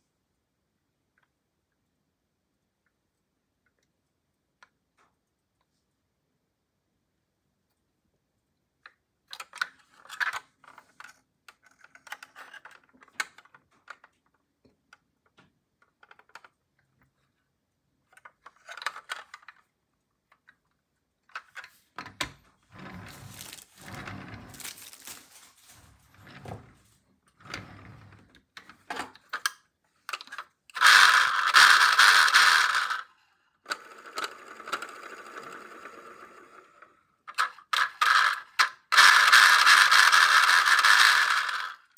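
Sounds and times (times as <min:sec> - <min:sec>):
model car parts clicking: 0:08.8 - 0:17.3, 0:18.0 - 0:22.3, 0:28.6 - 0:33.1, 0:37.3 - 0:41.9.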